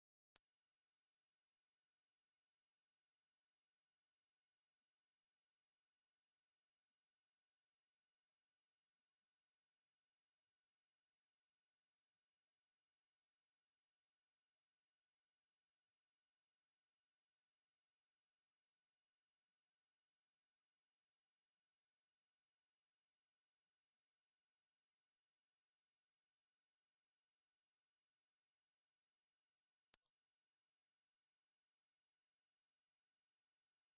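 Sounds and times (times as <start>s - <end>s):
high-pitched sine tone: 0.4s - 9.4s.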